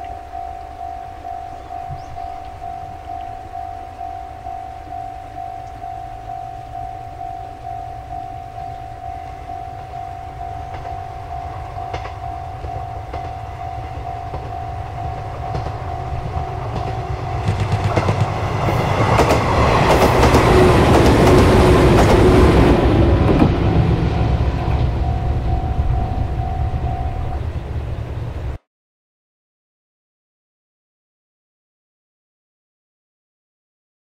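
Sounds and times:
repeating ringing tone: 0:00.0 - 0:19.3, 0:23.8 - 0:27.5
train passing: 0:00.0 - 0:28.6
wheels clacking over rail joints: 0:10.4 - 0:25.6.

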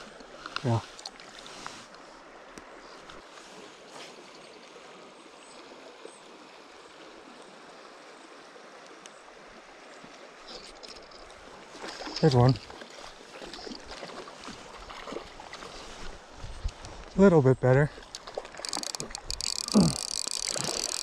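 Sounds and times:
creek water rushing: 0:00.0 - 0:21.0
faint clicks: 0:18.0 - 0:21.0.

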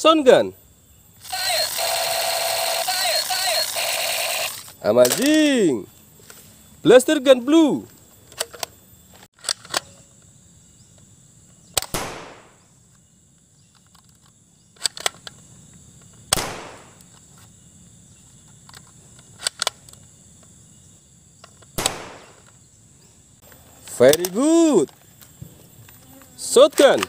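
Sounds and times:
toy blaster shots: 0:01.2 - 0:05.2
toy blaster clicks: 0:01.2 - 0:05.4.

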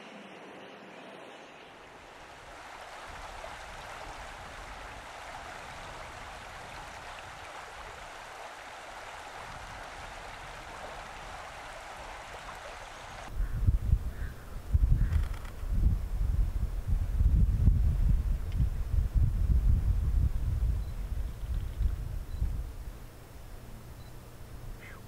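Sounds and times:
steady outdoor hiss: 0:00.0 - 0:25.0
low irregular rumbles: 0:13.3 - 0:25.0.

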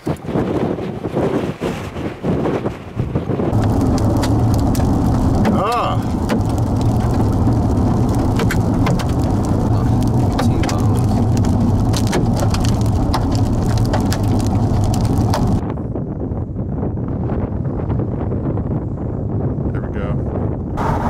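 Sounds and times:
wind noise: 0:00.0 - 0:21.0
vehicle driving road rumble: 0:03.0 - 0:21.0
hailstones striking a vehicle: 0:03.5 - 0:15.6.

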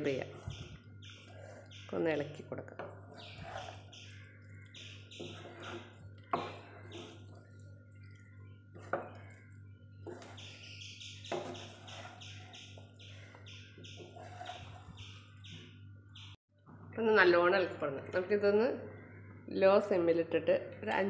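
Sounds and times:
small bird chirping: 0:00.0 - 0:16.4
low steady hum: 0:00.0 - 0:21.0
metal spatula scraping pan: 0:03.0 - 0:03.9, 0:05.1 - 0:07.5, 0:11.3 - 0:12.4, 0:14.0 - 0:14.9.

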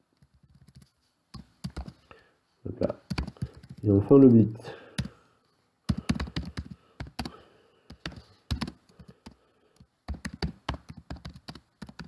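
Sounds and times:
computer keyboard typing: 0:00.2 - 0:02.0, 0:03.1 - 0:03.9, 0:04.9 - 0:05.2, 0:05.9 - 0:12.0.

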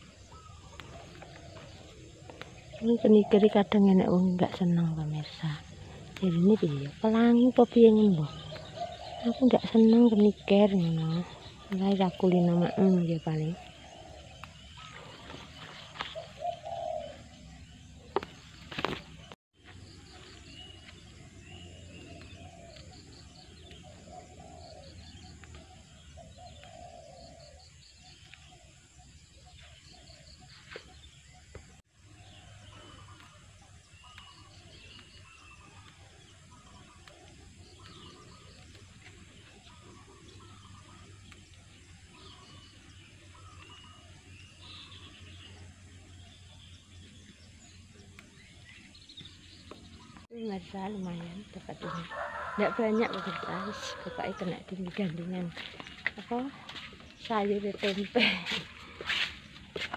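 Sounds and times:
lower bird calls: 0:00.0 - 0:59.9
small birds chirping: 0:00.0 - 0:59.9.

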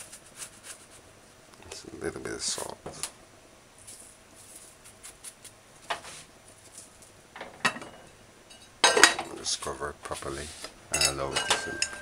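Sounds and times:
metal lid clanking onto pot: 0:07.4 - 0:09.3, 0:10.9 - 0:12.0.

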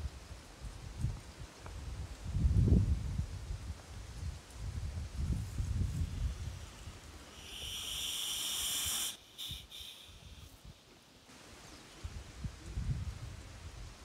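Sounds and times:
wind buffeting microphone: 0:00.0 - 0:10.8, 0:12.0 - 0:14.0
hiss: 0:04.8 - 0:12.2.

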